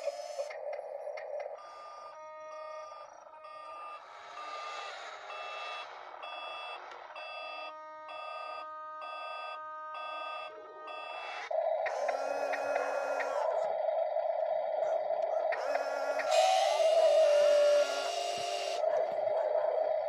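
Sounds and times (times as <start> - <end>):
electronic reversing beeper: 1.7 - 13.5, 15.6 - 18.8.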